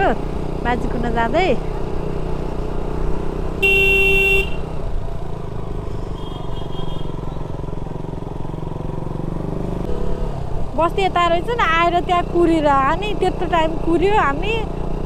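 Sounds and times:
motorcycle engine running: 0.0s - 15.0s
horn honk: 3.6s - 4.8s, 6.1s - 7.2s.

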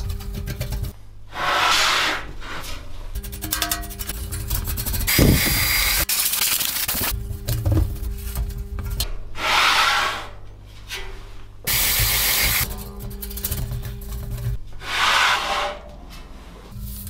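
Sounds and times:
loud hiss: 5.1s - 6.1s, 11.7s - 12.7s.

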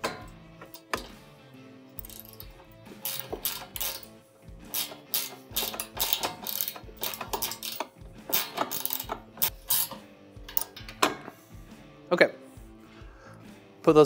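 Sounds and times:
soft background music: 0.0s - 14.0s
ratcheting wrench clicking: 2.0s - 11.1s.

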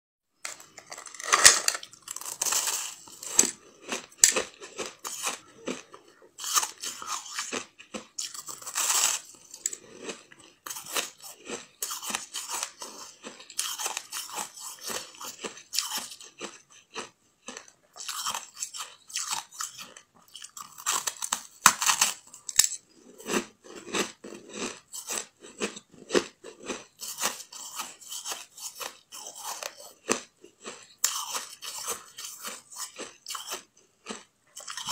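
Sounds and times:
ice crunching while chewing: 0.5s - 34.9s.

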